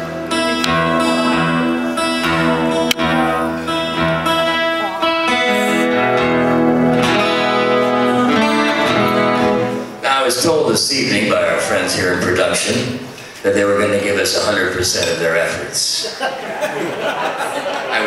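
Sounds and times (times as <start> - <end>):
acoustic guitar chords: 0.0 - 13.2.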